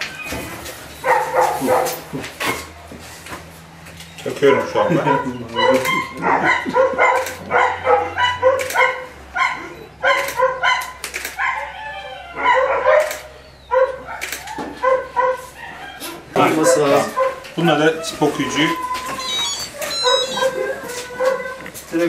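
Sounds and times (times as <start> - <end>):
puppy yelping and whimpering: 4.8 - 14.6, 15.6 - 21.8.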